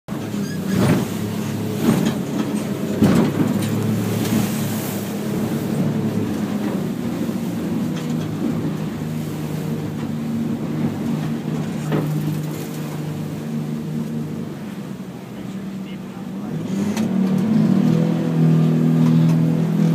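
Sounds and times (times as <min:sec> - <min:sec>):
boat engine running steadily: 0:00.1 - 0:19.9
knocks through the hull: 0:01.8 - 0:04.4.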